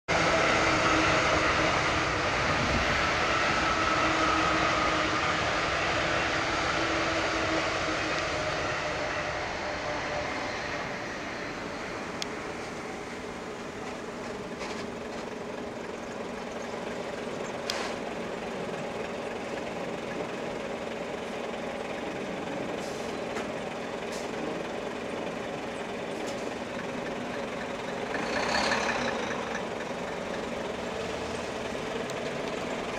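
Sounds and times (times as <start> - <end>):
road traffic: 0.0 - 32.9
electric train running: 0.1 - 32.9.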